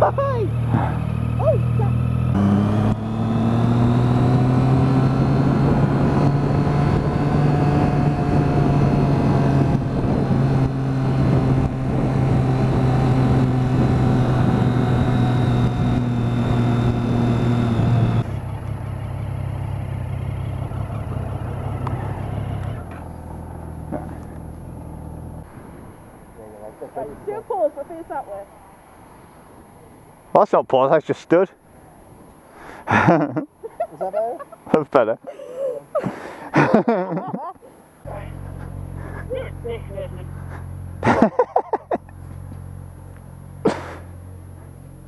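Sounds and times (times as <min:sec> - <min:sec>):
motorcycle engine running: 0:00.0 - 0:26.4, 0:36.6 - 0:45.0
wind noise: 0:05.1 - 0:18.0.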